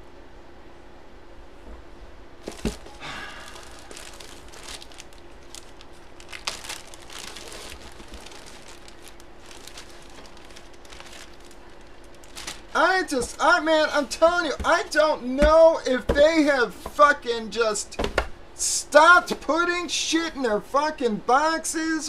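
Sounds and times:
faint steady hum: 0:00.0 - 0:22.0
plastic packaging crinkling: 0:02.4 - 0:15.0.

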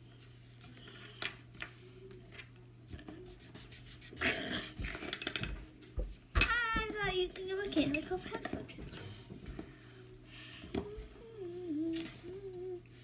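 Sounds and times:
low steady hum: 0:00.0 - 0:13.0
pencil scratching on paper: 0:03.2 - 0:04.8.

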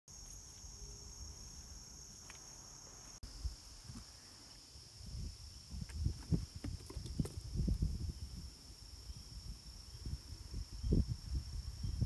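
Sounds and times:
insects chirping: 0:00.1 - 0:12.0
low thumps and rustles: 0:05.7 - 0:08.0.

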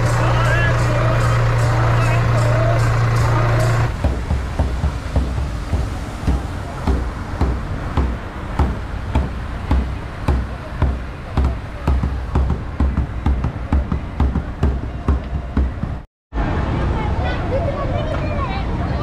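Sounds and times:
drum beating a steady rhythm: 0:00.0 - 0:16.1.

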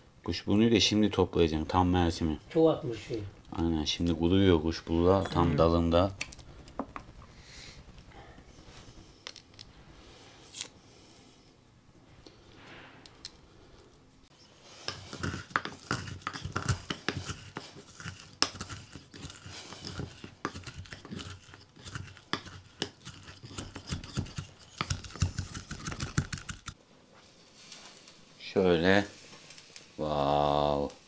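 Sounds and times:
crackling: 0:02.4 - 0:10.8, 0:12.5 - 0:31.0
rustling: 0:12.0 - 0:31.0.

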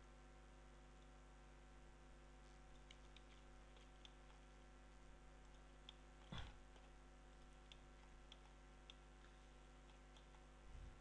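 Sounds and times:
electrical hum: 0:00.0 - 0:11.0
computer mouse clicks: 0:02.5 - 0:04.7, 0:05.4 - 0:11.0.

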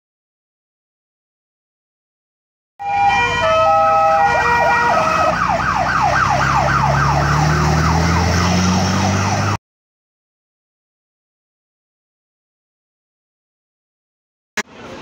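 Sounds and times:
fire engine siren: 0:02.8 - 0:09.6
truck engine accelerating: 0:02.8 - 0:09.6.

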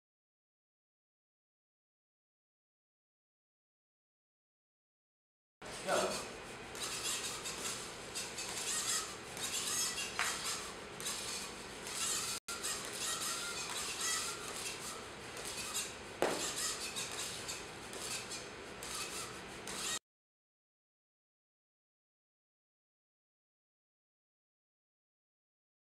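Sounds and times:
robot motors whirring: 0:05.9 - 0:20.0
sharp knocks: 0:16.2 - 0:16.6.

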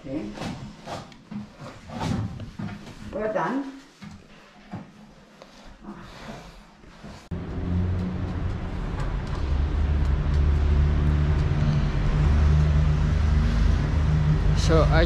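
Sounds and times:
traffic noise: 0:07.3 - 0:15.0
vehicle engine running: 0:07.3 - 0:15.0.

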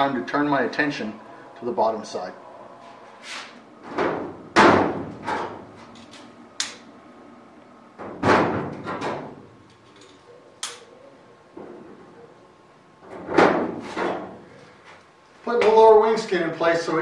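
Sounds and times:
metal panel knocks and thuds: 0:03.8 - 0:05.7, 0:08.0 - 0:09.4, 0:13.1 - 0:14.3.

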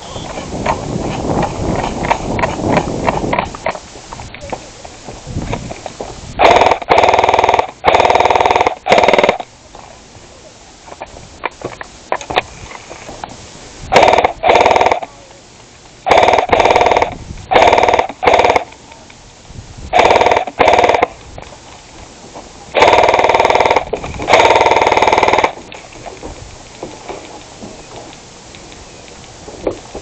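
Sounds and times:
paintball marker firing bursts: 0:06.4 - 0:09.5, 0:13.9 - 0:15.1, 0:16.0 - 0:18.7, 0:20.0 - 0:21.2, 0:22.8 - 0:25.6.

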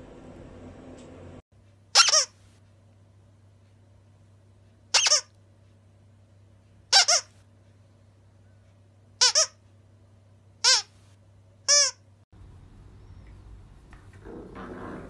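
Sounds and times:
dog toy squeaking: 0:02.0 - 0:02.4, 0:04.9 - 0:05.3, 0:06.9 - 0:07.3, 0:09.2 - 0:09.6, 0:10.6 - 0:10.9, 0:11.7 - 0:12.0.

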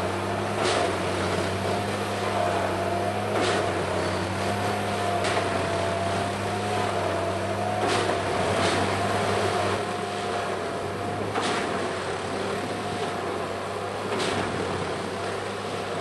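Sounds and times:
machine engine and hydraulics drone: 0:00.0 - 0:16.0
sharp tamping strokes: 0:03.1 - 0:06.9.

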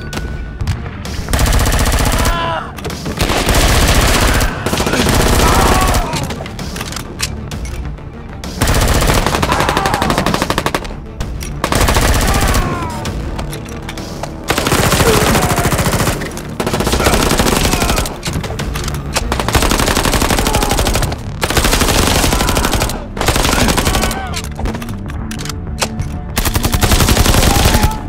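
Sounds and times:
rapid automatic gunfire bursts: 0:01.3 - 0:02.3, 0:03.1 - 0:06.0, 0:08.6 - 0:10.8, 0:11.6 - 0:12.6, 0:14.5 - 0:18.0, 0:19.3 - 0:24.1, 0:26.4 - 0:27.8.

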